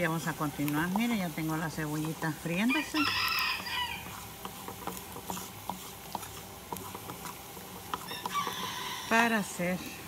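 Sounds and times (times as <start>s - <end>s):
onions sizzling in a pan: 0.0s - 10.0s
wooden spatula scraping a pan: 0.0s - 10.0s
rooster crowing: 2.7s - 4.2s, 8.0s - 9.4s.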